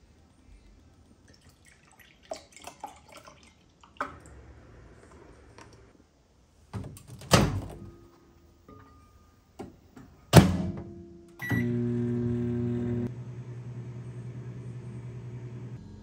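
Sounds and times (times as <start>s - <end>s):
milk pouring into a glass mug: 1.2s - 4.1s.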